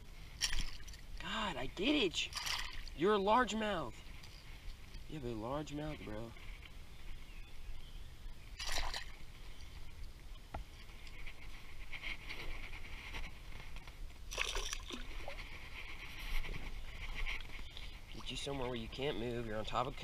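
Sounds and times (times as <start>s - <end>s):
water splashing and sloshing: 0.0s - 1.4s, 2.0s - 5.1s, 8.6s - 19.1s.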